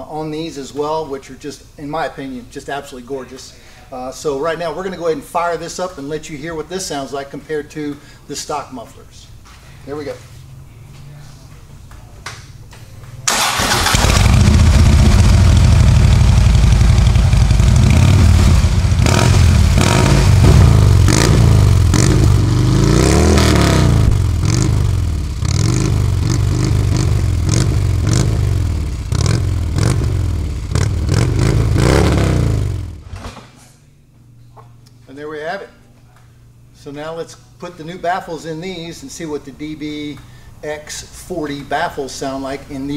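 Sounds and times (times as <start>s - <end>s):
motorcycle engine idling and revving: 13.1s - 33.1s.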